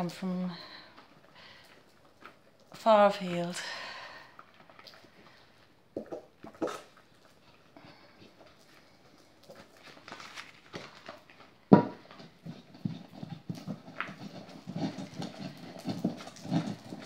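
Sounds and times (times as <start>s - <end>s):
pestle grinding in a bowl: 5.9s - 7.0s, 11.7s - 17.0s.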